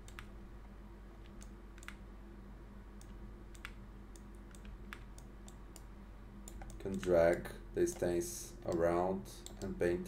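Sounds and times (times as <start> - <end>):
low hum: 0.0 - 10.0
faint computer clicks: 1.3 - 2.0, 3.0 - 9.8.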